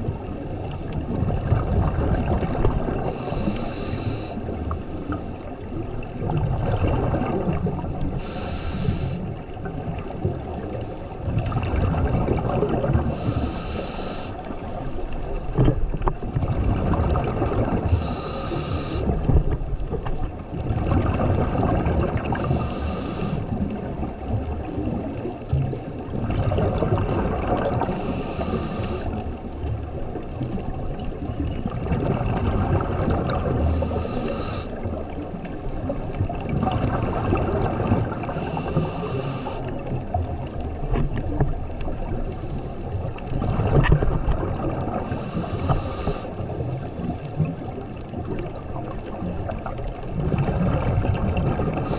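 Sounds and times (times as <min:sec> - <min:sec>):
exhaled air bubbling: 0:00.0 - 0:51.9
regulator hissing inhale: 0:03.0 - 0:05.4, 0:08.2 - 0:09.4, 0:13.0 - 0:14.9, 0:17.8 - 0:19.3, 0:22.4 - 0:23.6, 0:27.8 - 0:29.3, 0:33.6 - 0:34.9, 0:38.2 - 0:39.8, 0:42.0 - 0:43.2, 0:45.0 - 0:47.6.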